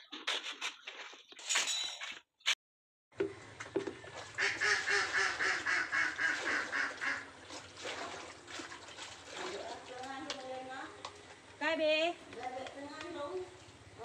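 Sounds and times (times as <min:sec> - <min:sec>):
birds honking calls: 0:04.3 - 0:07.4.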